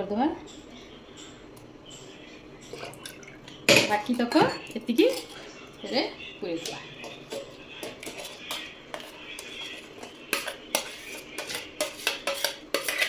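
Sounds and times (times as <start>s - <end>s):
spoon clinking and scraping pot: 7.0s - 13.0s.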